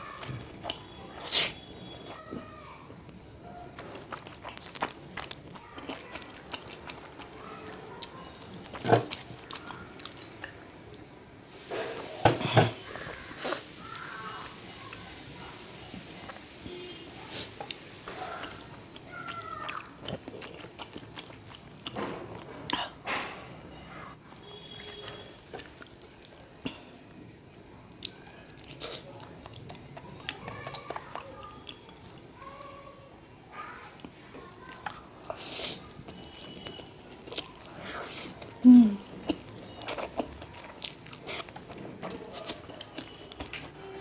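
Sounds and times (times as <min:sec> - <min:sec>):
chewing noodles: 0:03.8 - 0:10.6, 0:17.5 - 0:22.5, 0:27.9 - 0:32.7, 0:34.0 - 0:43.5
steady hiss: 0:11.4 - 0:19.0.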